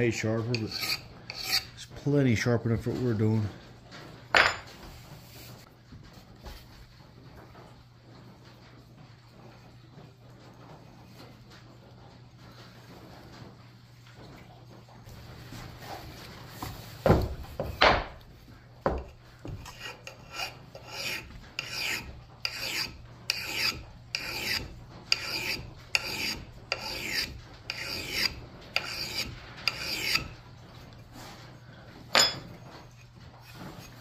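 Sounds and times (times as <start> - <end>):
file rasping on steel: 0.0 - 1.9, 19.0 - 30.6, 32.1 - 34.0.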